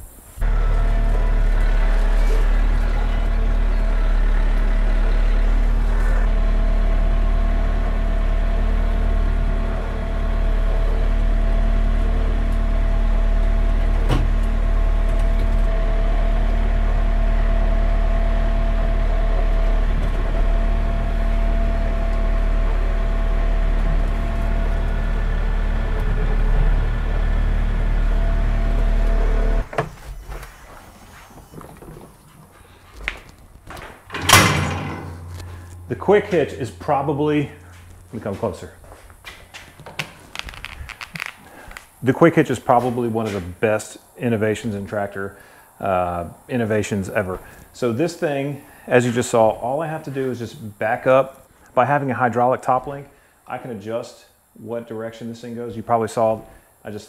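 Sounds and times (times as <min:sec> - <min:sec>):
tractor diesel engine running: 0:00.4 - 0:29.8, 0:34.0 - 0:43.5.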